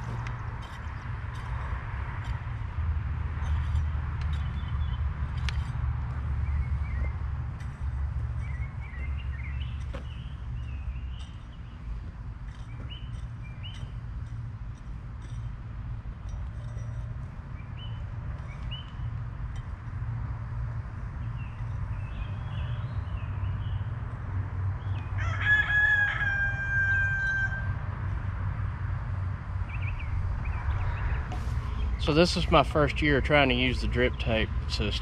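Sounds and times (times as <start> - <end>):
steady low rumble: 0.0 - 24.9
small birds chirping: 3.4 - 14.5, 16.2 - 19.2, 21.2 - 24.1
rooster crowing: 25.1 - 27.9.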